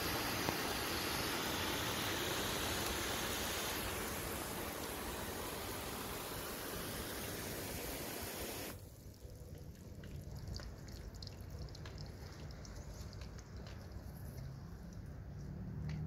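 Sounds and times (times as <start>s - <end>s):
water spraying hiss: 0.0s - 8.9s
faint dripping: 8.7s - 15.4s
light ticks: 9.5s - 16.0s.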